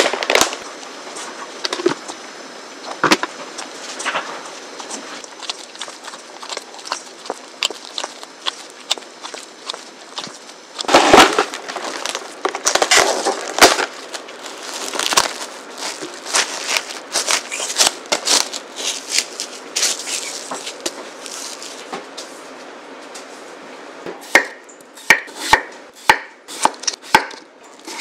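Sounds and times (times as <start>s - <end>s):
plastic wrap crackling: 5.2s - 21.9s.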